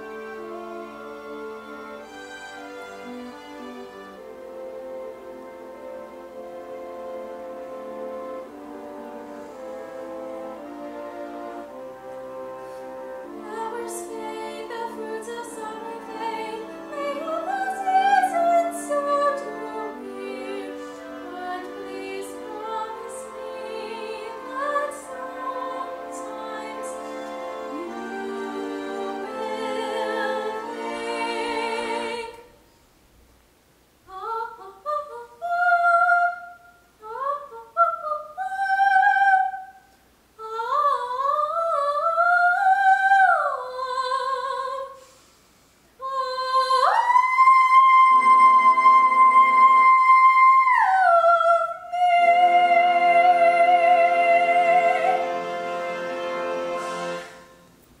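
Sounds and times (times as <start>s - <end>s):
orchestral accompaniment: 0.0s - 32.5s, 51.9s - 57.9s
girl singing soprano: 46.0s - 55.2s.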